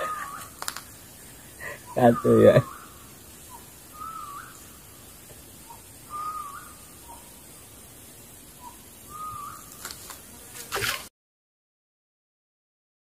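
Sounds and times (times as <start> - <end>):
bird calling pip and whistle: 0.0 - 1.0, 1.6 - 5.0, 5.6 - 7.5, 8.6 - 9.9
faint clicks: 0.5 - 0.9.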